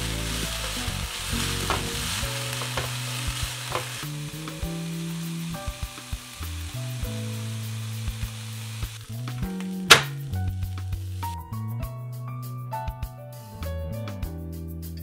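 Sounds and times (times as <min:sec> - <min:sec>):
vegetables sizzling in oil: 0:00.0 - 0:11.4.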